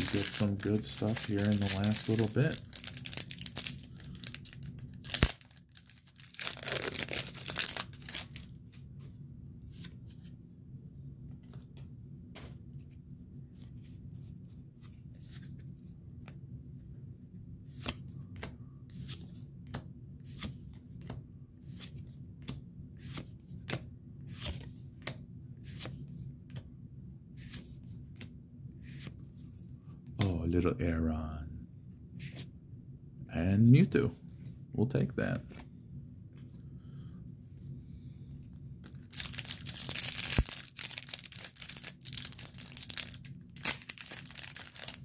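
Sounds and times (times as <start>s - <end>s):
foil wrapper tearing: 0.0s - 8.6s, 38.8s - 45.0s
steady low hum: 0.0s - 39.1s.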